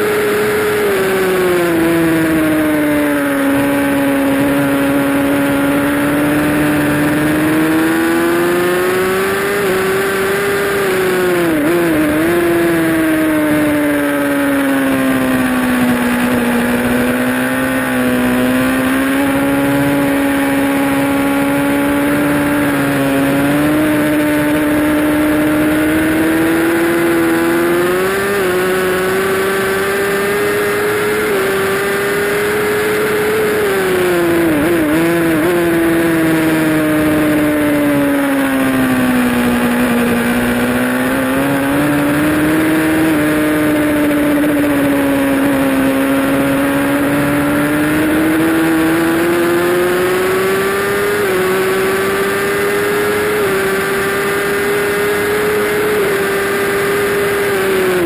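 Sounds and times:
motorcycle engine at high revs: 0.0s - 58.0s.

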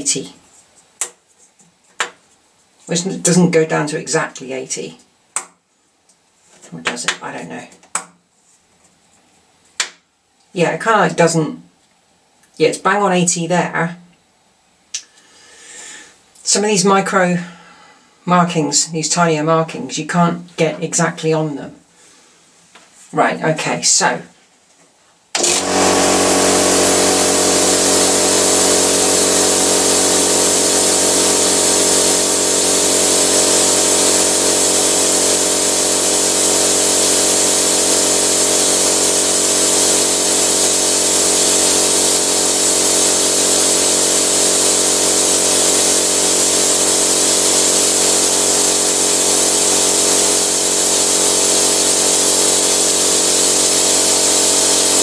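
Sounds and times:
air compressor motor humming: 25.4s - 55.0s
compressor hiss: 25.4s - 55.0s.

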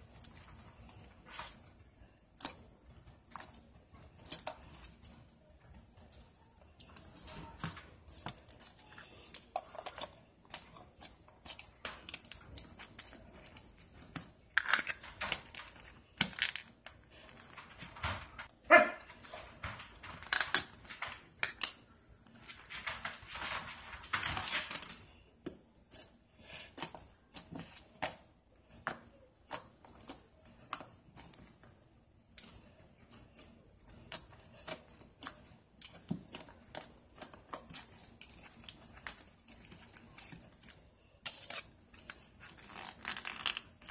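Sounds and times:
squeaky slime sound: 34.6s - 43.9s.

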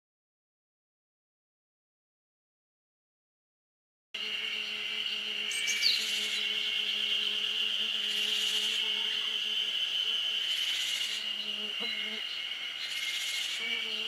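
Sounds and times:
high-pitched insect chorus: 4.2s - 14.0s
hissy insect bursts: 4.2s - 14.0s.

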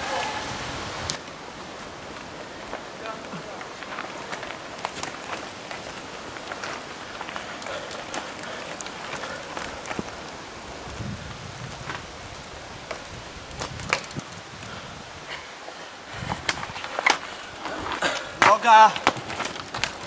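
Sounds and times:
mountain bikes on dirt trail: 0.0s - 20.0s
clicks and knocks from bikes: 3.6s - 10.4s, 12.9s - 14.7s, 16.2s - 20.0s.

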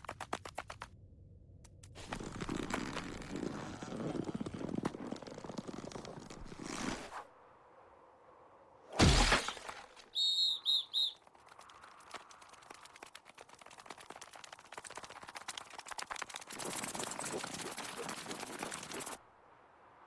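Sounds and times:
faint rapid ticks of scurrying: 11.0s - 19.2s.

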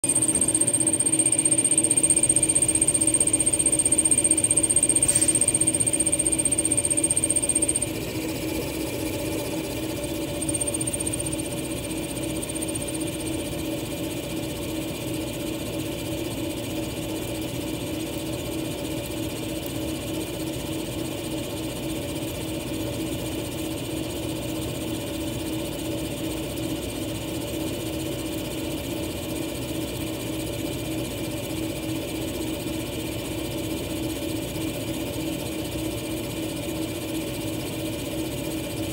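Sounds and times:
machine hum: 0.0s - 14.5s
high-pitched drill whine: 0.0s - 22.3s.

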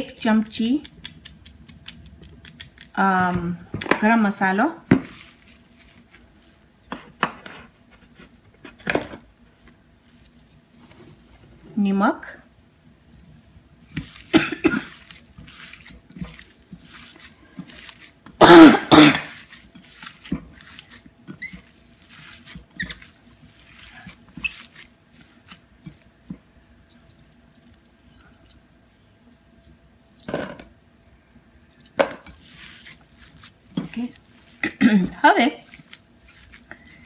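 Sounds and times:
wet squishing of kneaded meat: 12.5s - 26.9s, 32.3s - 37.0s.

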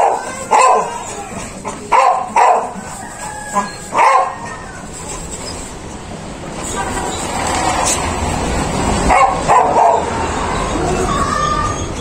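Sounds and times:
dog barking: 0.0s - 1.2s, 1.9s - 4.6s, 9.1s - 10.2s.

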